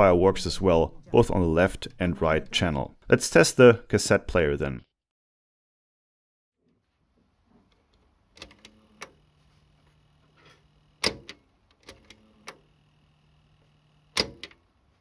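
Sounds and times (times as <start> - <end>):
faint motor hum: 8.6 - 11.0, 11.9 - 14.4.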